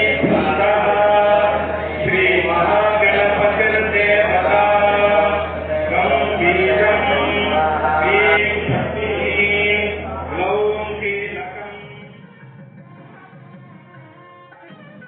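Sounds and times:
men chanting in unison: 0:00.0 - 0:12.2
steady low drone: 0:00.0 - 0:13.2.

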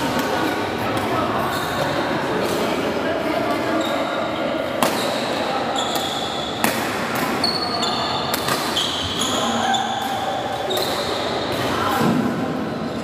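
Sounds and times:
shoes squeaking on court: 0:04.8 - 0:06.6, 0:07.4 - 0:10.0
rackets hitting shuttlecock: 0:04.8 - 0:07.4, 0:08.2 - 0:08.8.

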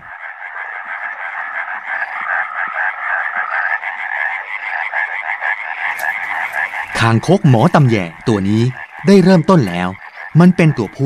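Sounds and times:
chorus of frogs calling: 0:00.0 - 0:11.0.

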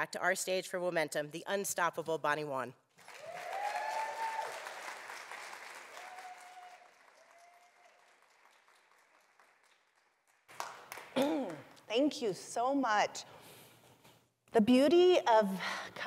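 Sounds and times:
audience applauding: 0:03.0 - 0:11.3.

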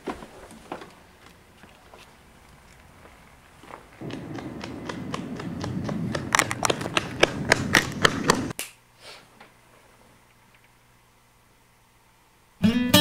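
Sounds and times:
running footsteps on pavement: 0:01.1 - 0:08.6
low rumble: 0:02.4 - 0:08.5.

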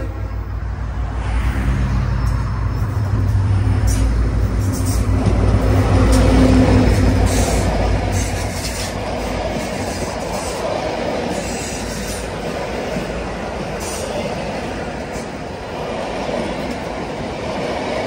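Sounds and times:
carriages rumbling on rails: 0:00.0 - 0:18.0
diesel locomotive engine droning: 0:00.0 - 0:18.0.

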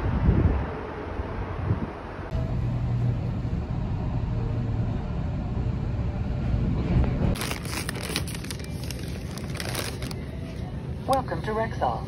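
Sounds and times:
vehicle cabin rumble: 0:02.3 - 0:11.6
rustling handling noise: 0:07.4 - 0:11.2.

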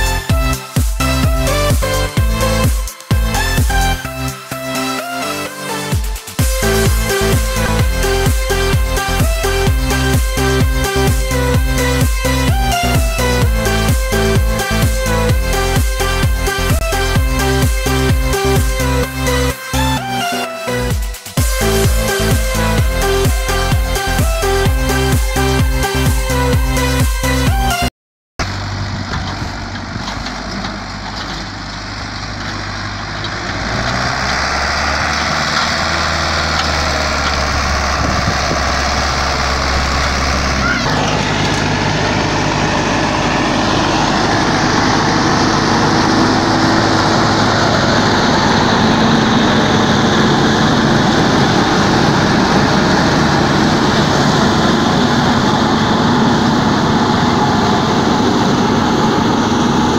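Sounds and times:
tractor diesel engine running: 0:00.0 - 0:27.8, 0:28.4 - 0:59.9
forage harvester chopping grass: 0:28.5 - 0:59.9.

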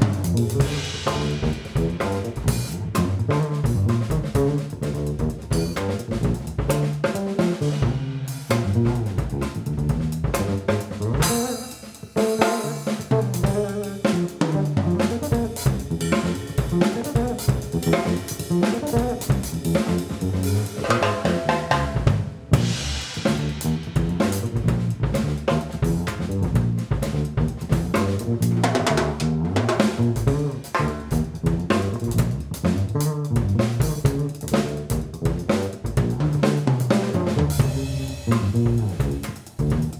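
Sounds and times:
drum kit groove: 0:00.0 - 0:39.9.

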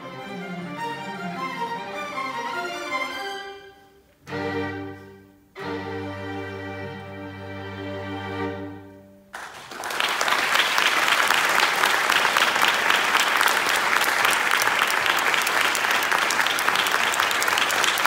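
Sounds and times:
string quartet chord: 0:00.0 - 0:09.2
audience applause: 0:09.4 - 0:18.0.

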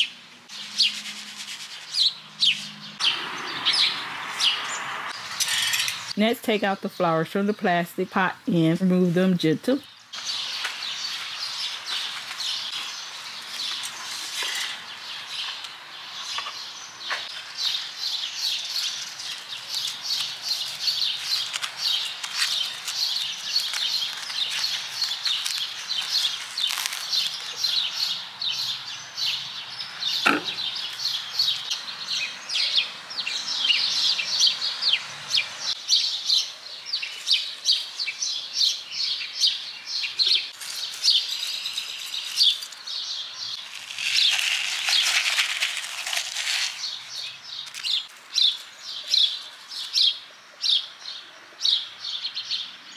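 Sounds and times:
songbirds chirping: 0:00.0 - 0:52.9
sharp knock: 0:30.2 - 0:30.7.

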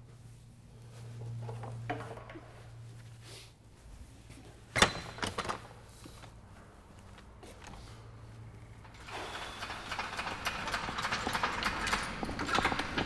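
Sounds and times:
footsteps on concrete floor: 0:00.0 - 0:04.7, 0:05.9 - 0:08.5.

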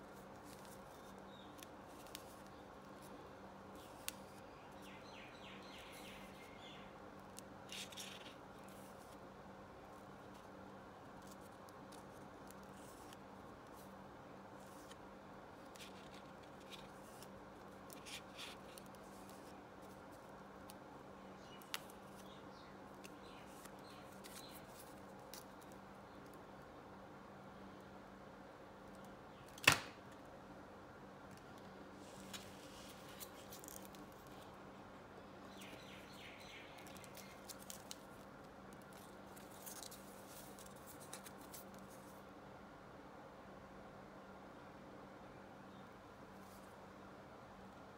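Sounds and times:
book pages rustling and scraping: 0:00.0 - 0:03.2, 0:07.7 - 0:09.2, 0:14.6 - 0:20.3, 0:23.0 - 0:25.8, 0:32.0 - 0:34.5, 0:35.6 - 0:42.2.

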